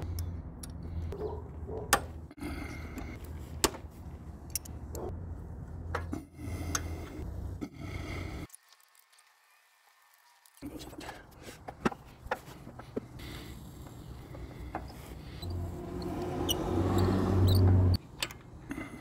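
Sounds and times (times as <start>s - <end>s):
steady low rumble: 0.0s - 8.5s.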